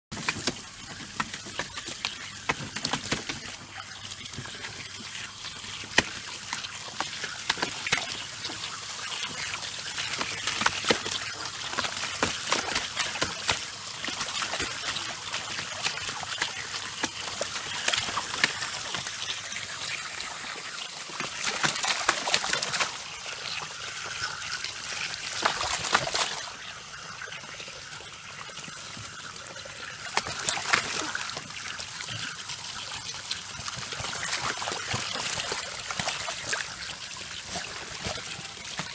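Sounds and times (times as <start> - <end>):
hose water spraying into pool: 0.1 - 38.9
dog splashing in water: 21.2 - 23.1, 25.1 - 26.6, 30.1 - 32.2.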